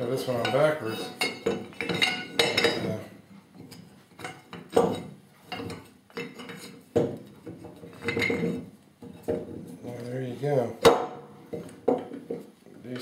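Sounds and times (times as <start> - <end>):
metal knocking on wooden bench: 10.8 - 12.5.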